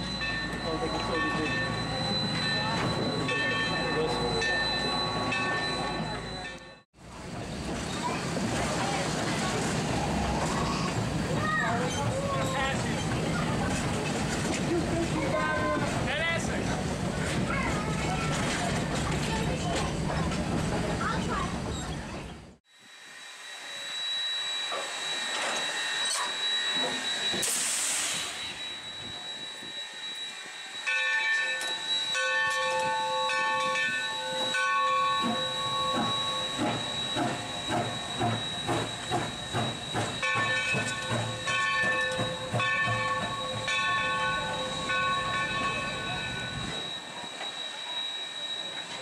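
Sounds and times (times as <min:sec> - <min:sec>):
steam locomotive hissing: 0:07.1 - 0:49.0
chime whistle blasts: 0:22.9 - 0:49.0
steam burst: 0:23.0 - 0:30.8.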